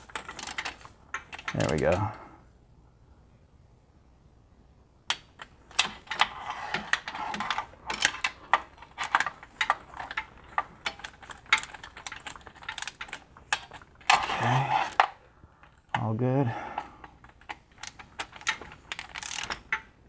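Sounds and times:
ratchet clicking: 0:17.4 - 0:19.8.

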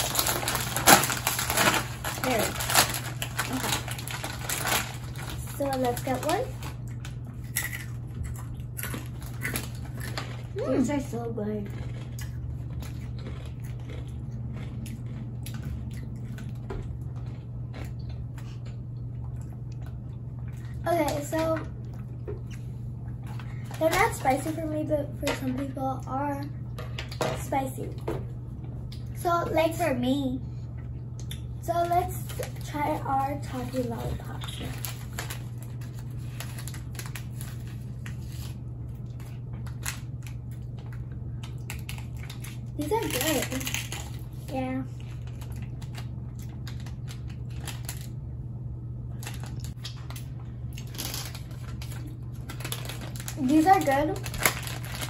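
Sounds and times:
plastic wrappers crinkling: 0:00.0 - 0:11.1, 0:31.8 - 0:48.2, 0:49.1 - 0:55.0
crunching chips: 0:00.0 - 0:18.8, 0:31.2 - 0:48.4, 0:49.1 - 0:55.0
steady low hum: 0:00.0 - 0:55.0.

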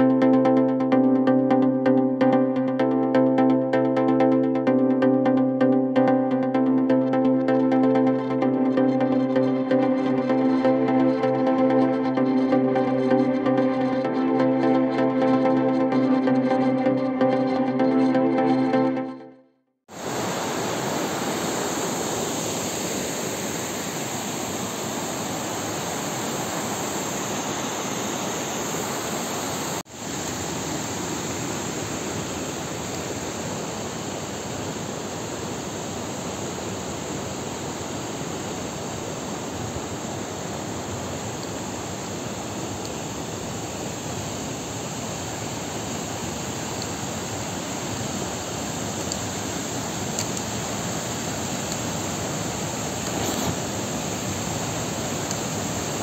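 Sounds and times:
stream rushing over rocks: 0:19.9 - 0:56.0.

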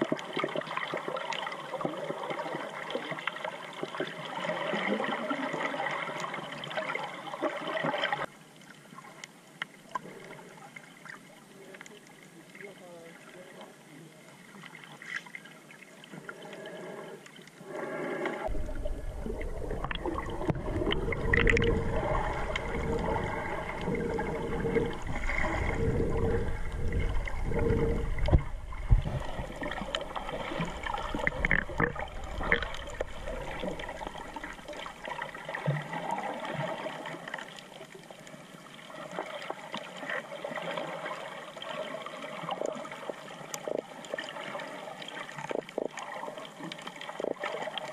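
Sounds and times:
faint underwater hiss: 0:00.0 - 0:47.8
water sloshing and gurgling: 0:00.0 - 0:47.9
underwater clicks: 0:18.5 - 0:35.2.

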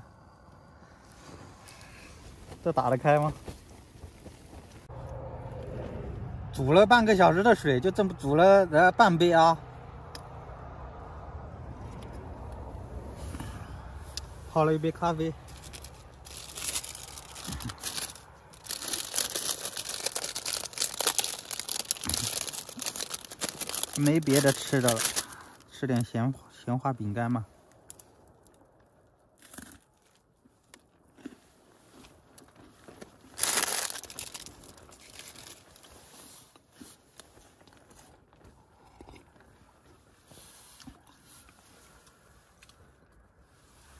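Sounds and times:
chewing crisp wafer biscuit: 0:15.4 - 0:25.6, 0:29.3 - 0:42.8
plastic bag crinkling: 0:15.4 - 0:25.7, 0:33.0 - 0:36.0.

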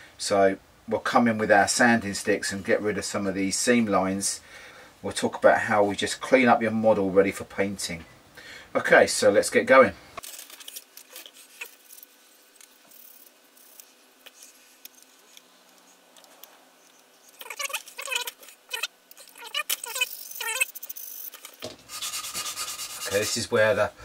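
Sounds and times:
sanding stick rubbing plastic: 0:21.9 - 0:23.4.

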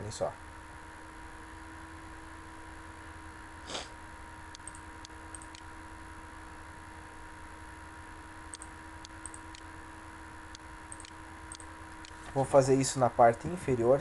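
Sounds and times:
low electrical hum: 0:00.0 - 0:14.0
computer mouse clicking: 0:04.5 - 0:05.7, 0:08.5 - 0:09.7, 0:10.5 - 0:12.2.

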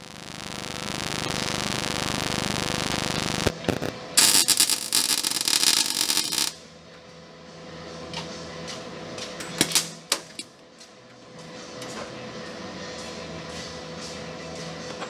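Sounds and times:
welding arc crackling: 0:00.0 - 0:06.6
low steady hum: 0:00.0 - 0:07.9.

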